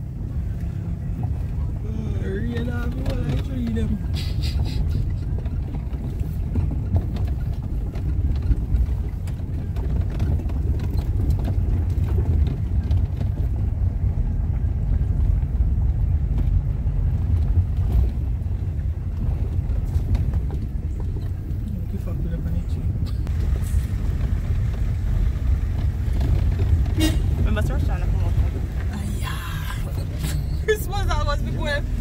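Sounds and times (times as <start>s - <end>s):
car rumbling on dirt road: 0.0s - 32.0s
small knocks and rattles: 5.0s - 14.6s, 16.2s - 22.1s.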